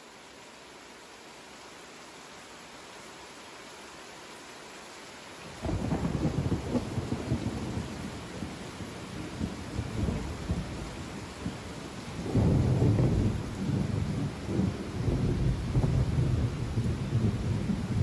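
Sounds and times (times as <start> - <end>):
steady hiss: 0.0 - 18.0
rolling thunder: 5.6 - 18.0.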